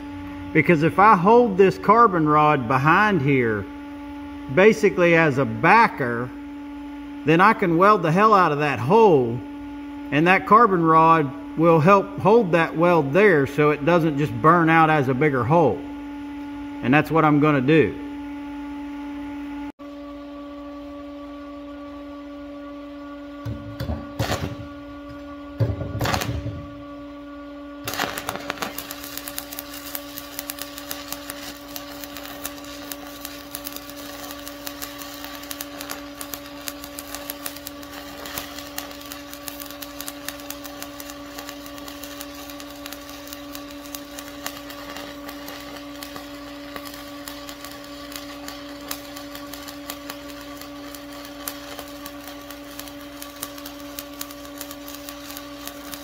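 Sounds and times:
electrical hum: 0:00.0 - 0:56.0
welding arc crackling: 0:23.8 - 0:26.8, 0:27.8 - 0:56.0.

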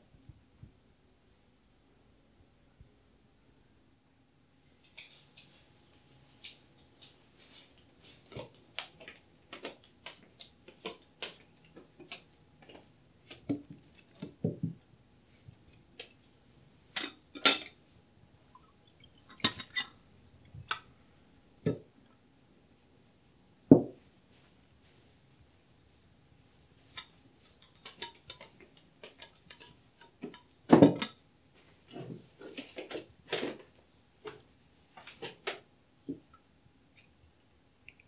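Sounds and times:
crockery and cutlery clinking: 0:16.9 - 0:17.8, 0:19.3 - 0:20.0, 0:26.9 - 0:31.2.

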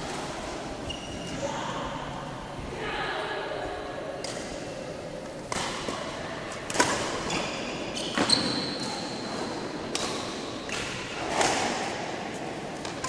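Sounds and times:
shoe squeak: 0:00.8 - 0:01.4, 0:07.2 - 0:09.3
racket hitting shuttlecock: 0:05.5 - 0:07.5, 0:09.9 - 0:13.0.

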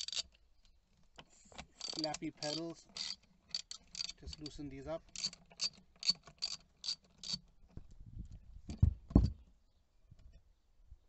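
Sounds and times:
ratchet clicking: 0:00.0 - 0:00.2, 0:01.8 - 0:07.4.

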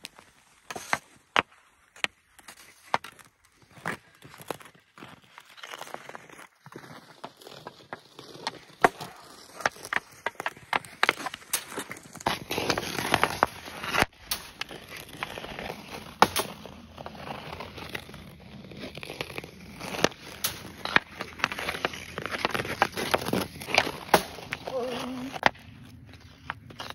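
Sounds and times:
skate blades scraping ice: 0:00.1 - 0:26.9
hockey stick cracking puck: 0:06.8 - 0:25.6.

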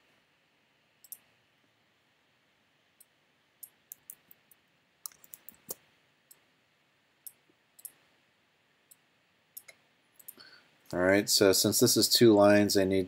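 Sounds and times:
computer mouse clicks: 0:01.0 - 0:01.3, 0:03.0 - 0:06.4, 0:07.2 - 0:08.0, 0:09.6 - 0:10.4.

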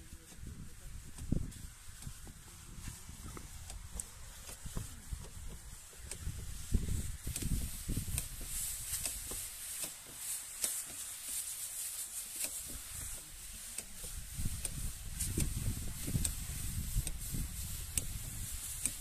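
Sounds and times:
wind buffeting microphone: 0:00.0 - 0:09.4, 0:14.0 - 0:19.0
faint steady high hiss: 0:00.0 - 0:19.0.

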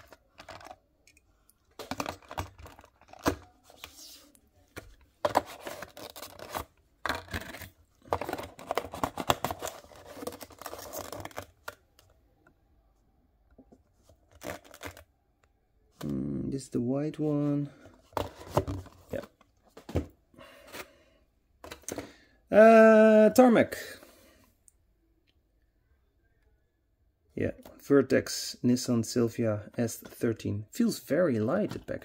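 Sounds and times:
cardboard and plastic scraping: 0:01.7 - 0:11.8, 0:17.8 - 0:20.9.

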